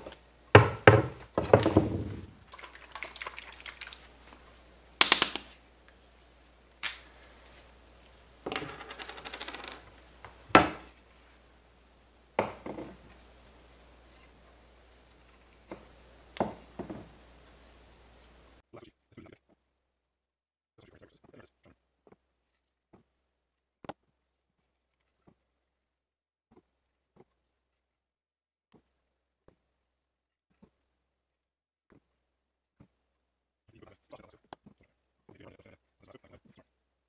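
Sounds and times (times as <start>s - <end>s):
wooden items knocking on workbench: 0.6s - 2.4s, 8.4s - 9.9s, 10.5s - 10.9s, 12.4s - 13.0s, 16.4s - 17.2s.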